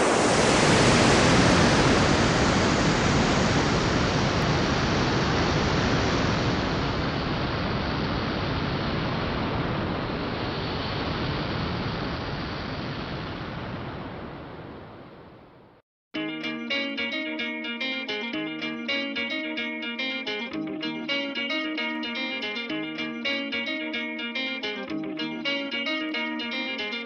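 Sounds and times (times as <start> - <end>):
rocket launch roar: 0.0 - 15.4.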